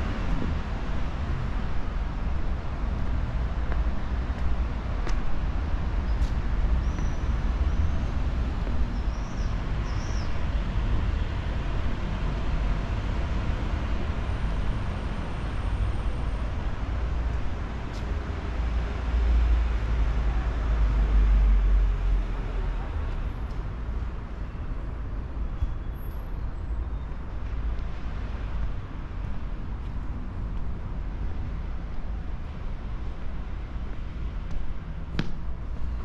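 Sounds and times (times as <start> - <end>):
distant road traffic rumble: 0.0 - 36.0.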